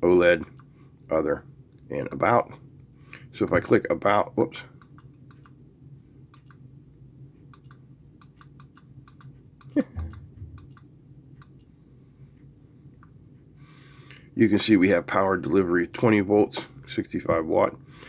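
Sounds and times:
low vocal sound: 0:09.8 - 0:10.6.

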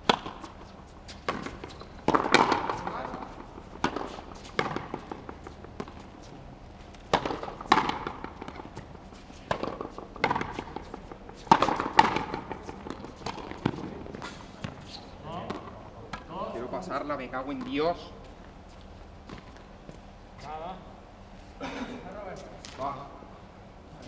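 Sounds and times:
ball slapping against wall: 0:01.2 - 0:03.2, 0:07.1 - 0:08.9, 0:09.5 - 0:14.8
rubber ball struck with rackets: 0:01.3 - 0:03.2, 0:07.1 - 0:08.6, 0:11.5 - 0:13.9.

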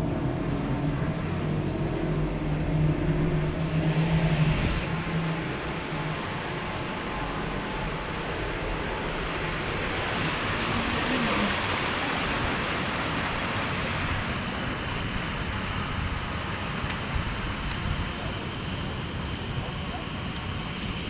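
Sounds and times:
wind rushing: 0:00.0 - 0:16.3
sea surf: 0:00.0 - 0:21.0
wind buffeting microphone: 0:00.0 - 0:21.0.

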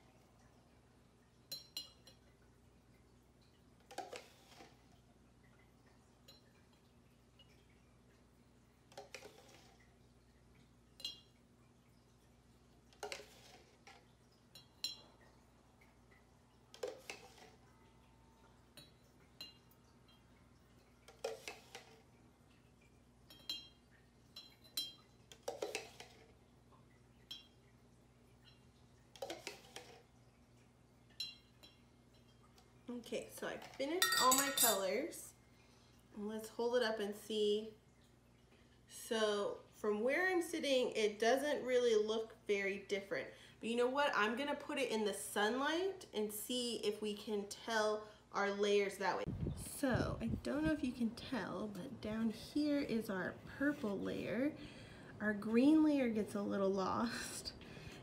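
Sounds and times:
spoon stirring in plastic cup: 0:03.8 - 0:05.1, 0:08.8 - 0:10.0, 0:12.7 - 0:15.3, 0:16.7 - 0:17.8, 0:18.7 - 0:22.2, 0:23.2 - 0:26.5, 0:28.4 - 0:30.2, 0:33.5 - 0:35.0
spoon knocking against cup: 0:34.0 - 0:34.8
light spoon clinks: 0:34.0 - 0:35.0.

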